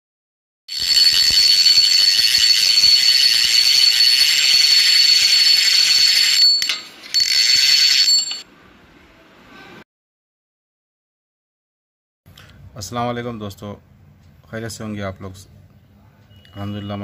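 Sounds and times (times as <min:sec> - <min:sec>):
high ringing tone: 0:00.7 - 0:08.5.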